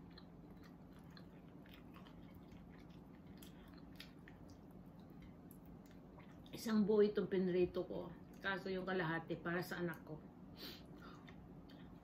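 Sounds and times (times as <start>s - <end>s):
faint chewing: 0.0s - 6.7s, 10.8s - 12.0s
steady low hum: 0.0s - 12.0s.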